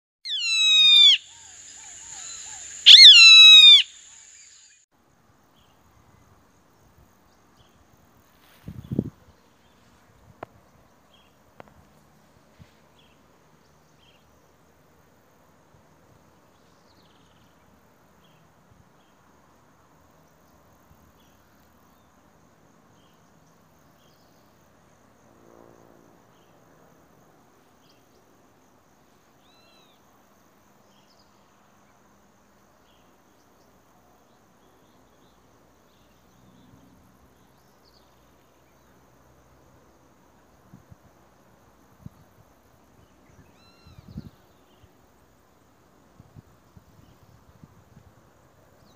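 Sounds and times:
high bird chirps: 0.3 - 4.8
faint insect hum: 0.3 - 48.9.

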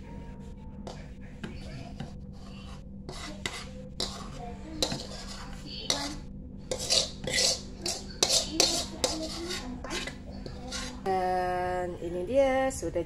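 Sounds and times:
utensil scraping a pan: 1.5 - 11.1.

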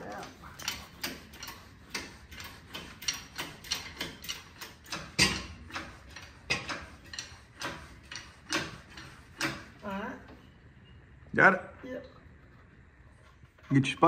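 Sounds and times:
ratchet wrench clicking: 0.2 - 9.7.

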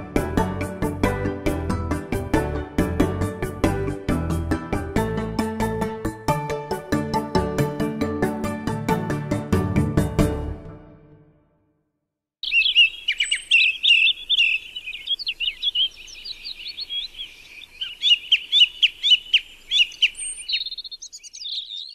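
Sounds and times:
song thrush singing: 12.4 - 21.9.

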